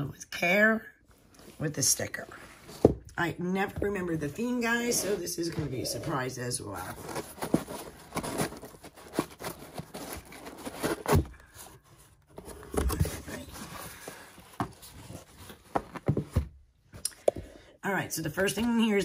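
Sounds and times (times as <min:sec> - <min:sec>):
cardboard scraping and rubbing: 0:04.0 - 0:16.5.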